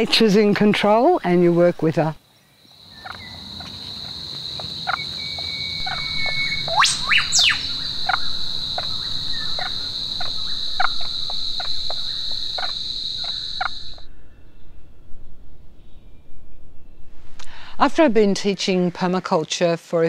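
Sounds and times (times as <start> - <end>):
high-pitched insect drone: 2.8 - 14.1
sharp rising-falling animal call: 4.8 - 14.1.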